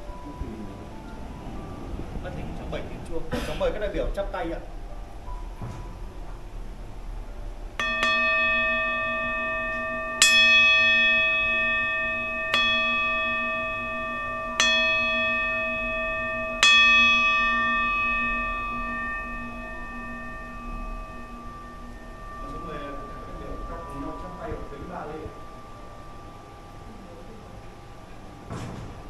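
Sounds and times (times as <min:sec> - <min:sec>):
prayer bell ringing: 0:07.8 - 0:29.0.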